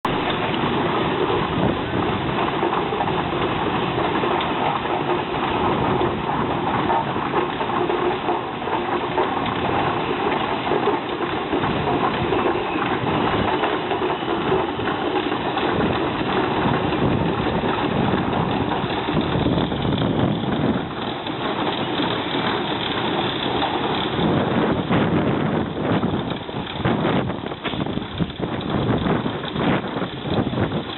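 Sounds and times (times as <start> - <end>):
steam traction engine running: 0.0 - 30.9.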